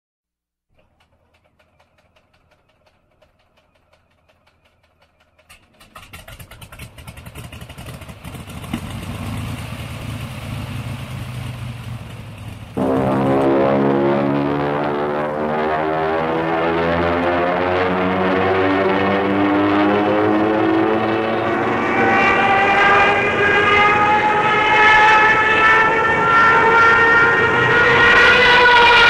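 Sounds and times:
engine-like revving rattle of clicks: 0:00.7 - 0:09.7
loud droning tone with overtones: 0:12.8 - 0:29.0.

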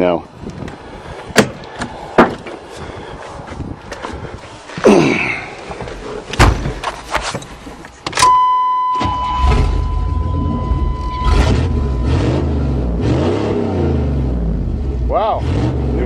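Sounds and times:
steady high-pitched tone: 0:08.2 - 0:13.0
truck engine rumbling: 0:09.0 - 0:16.0.

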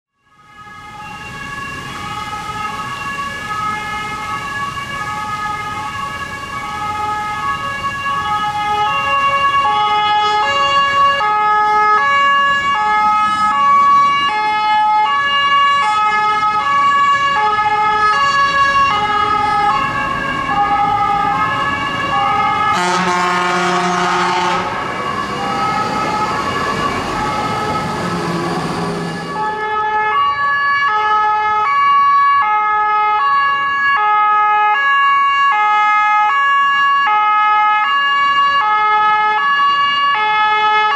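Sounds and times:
two-tone fire truck siren: 0:00.1 - 0:40.9
truck horn blast: 0:22.6 - 0:24.8.

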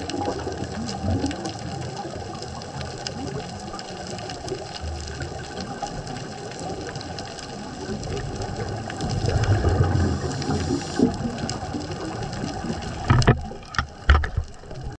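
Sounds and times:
bubbling: 0:00.0 - 0:15.0
underwater hum and rumble: 0:00.0 - 0:15.0.

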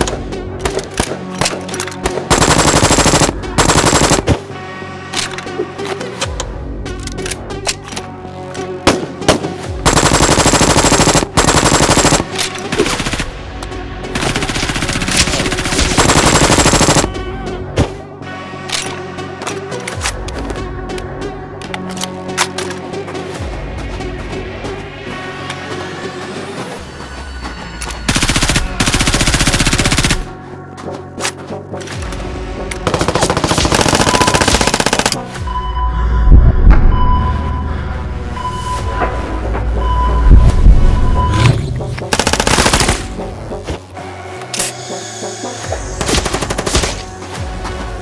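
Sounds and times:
background music: 0:00.0 - 0:48.0
rapid automatic gunfire: 0:02.3 - 0:04.4, 0:09.8 - 0:13.3, 0:14.2 - 0:17.2, 0:28.1 - 0:30.3, 0:32.9 - 0:35.2, 0:42.1 - 0:43.1.

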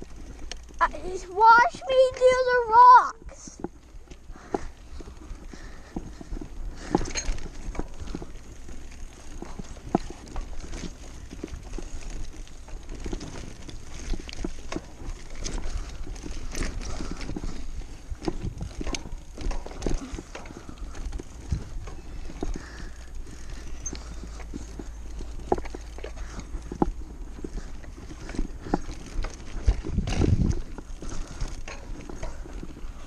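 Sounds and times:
bike rattling over bumpy trail: 0:00.0 - 0:33.0
wind rumble on microphone: 0:04.8 - 0:24.4, 0:26.3 - 0:33.0.

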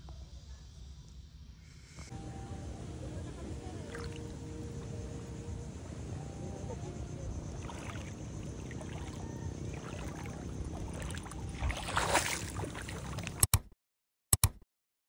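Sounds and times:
steady low rumble: 0:00.9 - 0:13.4
feet wading through water: 0:03.2 - 0:13.4
sharp click: 0:13.4 - 0:13.7, 0:14.3 - 0:14.6.

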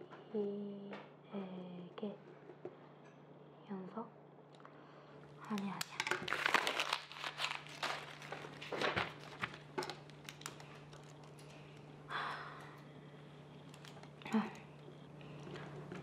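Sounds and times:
paper crumpling: 0:06.2 - 0:11.9
breathy sigh: 0:12.1 - 0:13.1.

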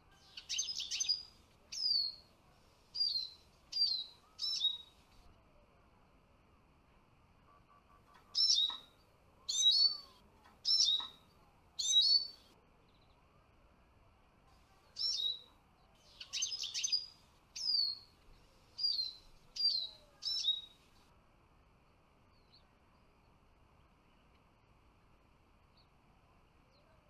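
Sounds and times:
bird twittering: 0:00.2 - 0:02.2, 0:03.0 - 0:05.0, 0:08.1 - 0:11.2, 0:11.8 - 0:12.4, 0:15.0 - 0:18.1, 0:18.8 - 0:20.8
bird whistled calls: 0:00.3 - 0:02.2, 0:03.0 - 0:05.0, 0:08.3 - 0:08.9, 0:09.5 - 0:11.2, 0:11.8 - 0:12.4, 0:15.0 - 0:15.5, 0:16.1 - 0:18.1, 0:18.8 - 0:20.8.

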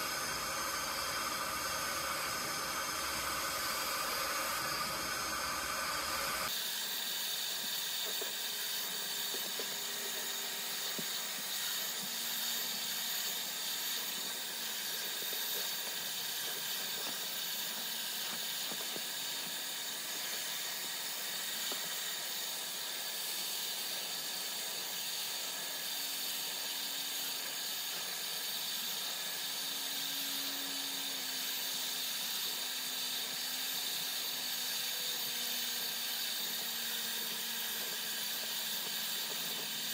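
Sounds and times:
shop vacuum running: 0:00.0 - 0:39.9.

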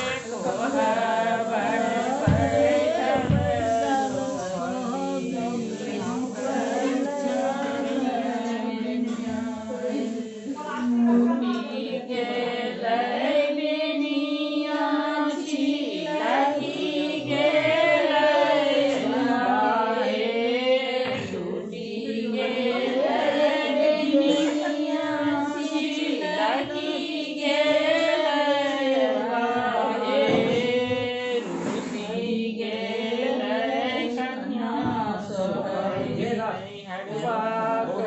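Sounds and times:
women singing in chorus: 0:00.0 - 0:38.0.

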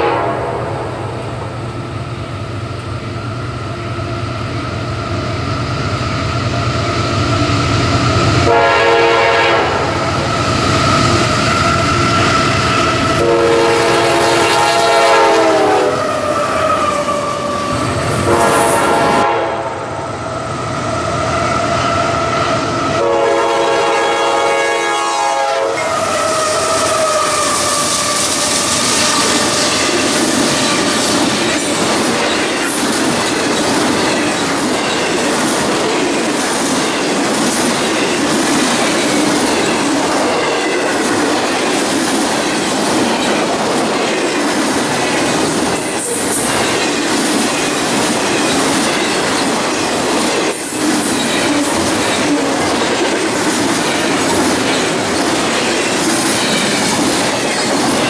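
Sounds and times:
locomotive air horn chord: 0:00.0 - 0:01.2, 0:08.5 - 0:10.0, 0:13.2 - 0:16.8, 0:18.2 - 0:20.0, 0:23.0 - 0:29.8
train wheels clacking over rail joints: 0:25.8 - 0:58.0.

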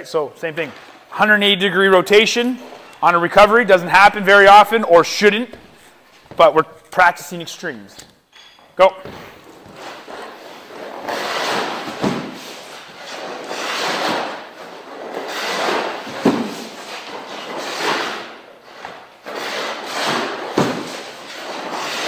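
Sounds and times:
skate blades scraping ice: 0:09.7 - 0:22.0.

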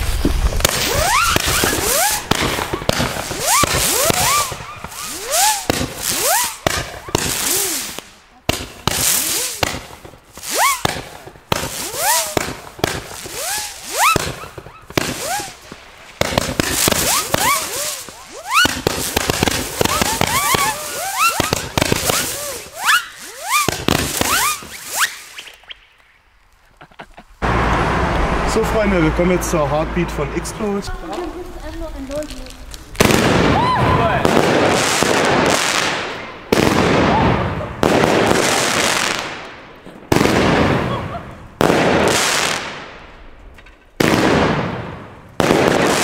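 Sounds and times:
firework hissing launches: 0:00.0 - 0:26.1
firework bangs: 0:00.0 - 0:26.2, 0:27.3 - 0:46.0
firework whistle gliding in pitch: 0:00.8 - 0:08.0, 0:10.5 - 0:10.9, 0:11.6 - 0:15.7, 0:16.7 - 0:25.9.

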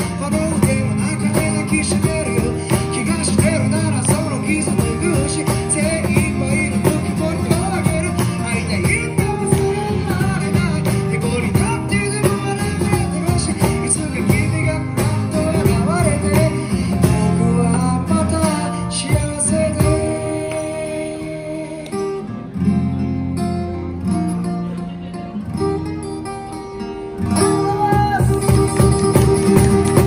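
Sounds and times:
cajon with cymbal: 0:00.0 - 0:21.2, 0:27.3 - 0:30.0
man singing through microphone: 0:00.0 - 0:22.3
strummed acoustic guitar: 0:00.0 - 0:30.0.

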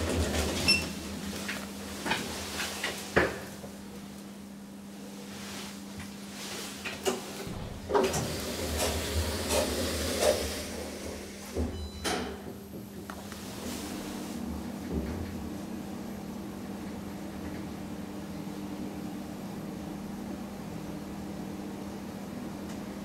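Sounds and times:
sliding lift doors closing: 0:00.0 - 0:03.8, 0:06.4 - 0:15.6.

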